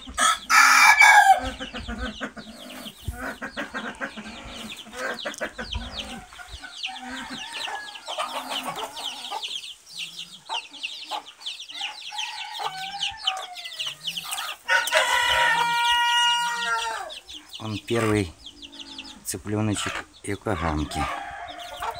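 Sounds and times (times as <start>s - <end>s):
chickens clucking: 0.0s - 21.9s
rooster crowing: 0.2s - 1.6s, 6.8s - 9.2s, 11.8s - 17.2s, 20.8s - 21.9s.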